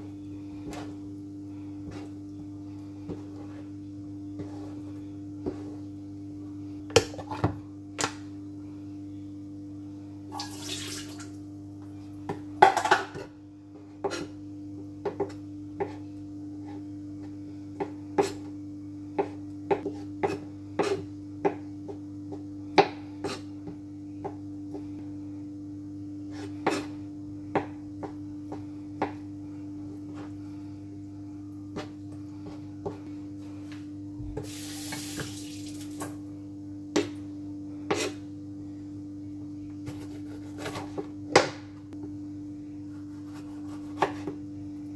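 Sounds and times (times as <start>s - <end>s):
steady low hum: 0.0s - 44.9s
knife chopping on plastic board: 43.6s - 44.4s.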